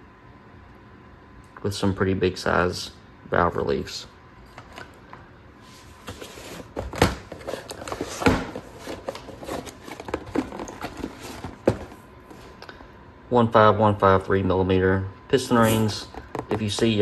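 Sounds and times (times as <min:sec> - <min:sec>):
cardboard and plastic rustling: 0:05.6 - 0:12.6
box knocking on workbench: 0:10.0 - 0:12.0.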